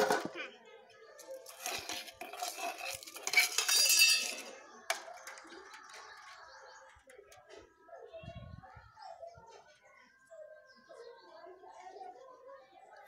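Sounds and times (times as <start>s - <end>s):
metal dishes clattering: 0.0s - 0.5s, 1.2s - 7.5s.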